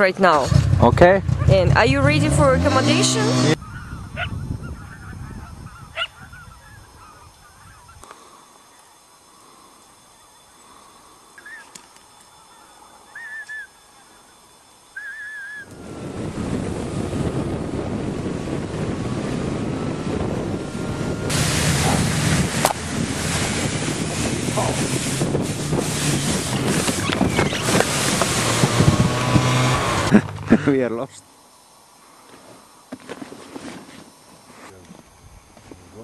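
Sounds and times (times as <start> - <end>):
snowmobile engine running: 0.3 - 3.6, 15.8 - 30.8
heavy wind noise: 0.7 - 8.0, 15.7 - 30.8.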